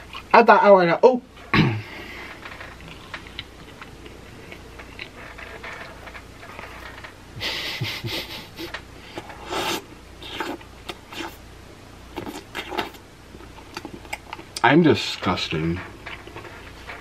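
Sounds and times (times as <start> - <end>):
wet chewing clicks: 12.1 - 14.7.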